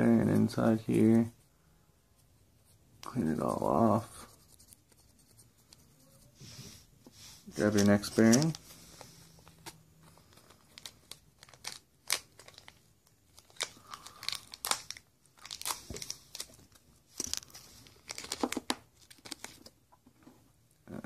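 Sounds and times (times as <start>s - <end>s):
packaging crinkling and tearing: 7.6s - 8.6s, 10.2s - 19.7s.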